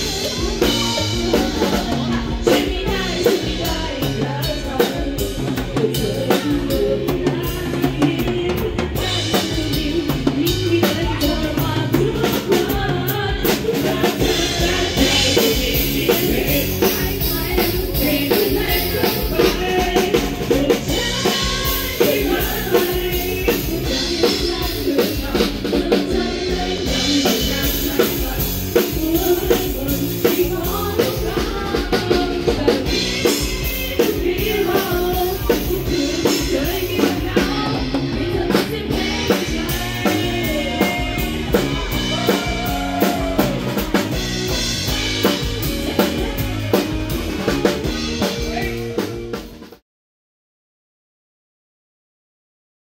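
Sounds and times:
bass guitar: 0:00.0 - 0:49.8
electric guitar: 0:00.0 - 0:49.8
live band playing up-tempo song: 0:00.0 - 0:49.8.

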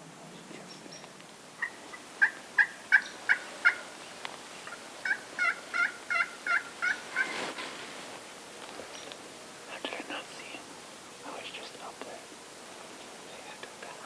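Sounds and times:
wild turkeys yelping: 0:01.6 - 0:04.0, 0:04.6 - 0:07.6.

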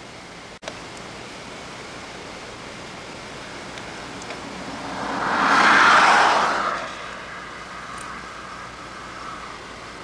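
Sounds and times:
steady hiss: 0:00.0 - 0:10.0
vehicle passing on highway: 0:03.3 - 0:10.0.

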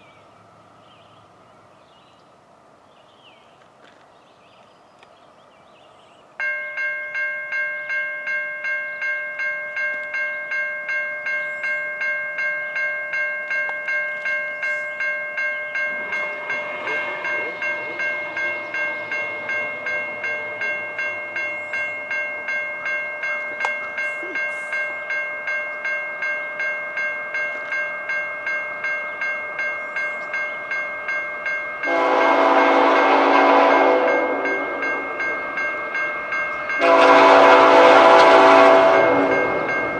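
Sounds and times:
level crossing bell ringing: 0:06.4 - 0:39.9
locomotive horn blast: 0:31.8 - 0:35.5, 0:36.8 - 0:39.7.

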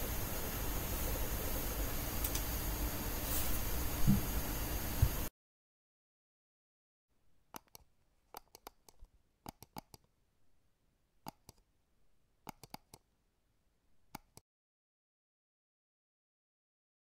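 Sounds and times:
crochet hook clicking: 0:07.5 - 0:10.1, 0:11.2 - 0:11.6, 0:12.4 - 0:13.0.

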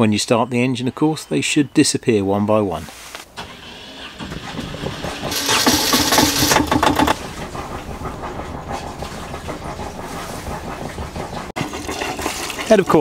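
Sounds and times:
diesel engine revving then idling: 0:03.3 - 0:12.6.

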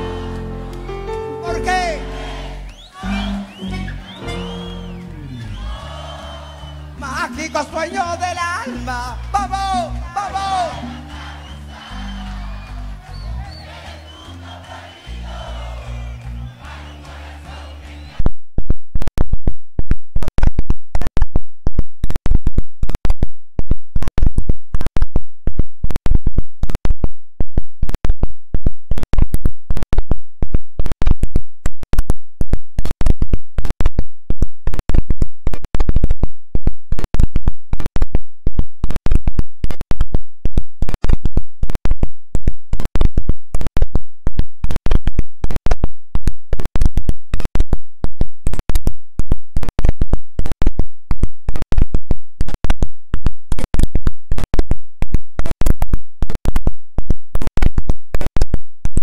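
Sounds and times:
distorted live band music: 0:00.0 - 0:18.1.

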